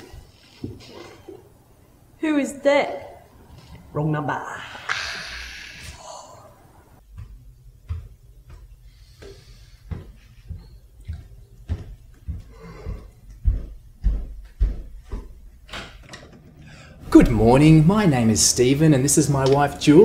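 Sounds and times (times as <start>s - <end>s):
dull thumps: 7.0s - 15.7s.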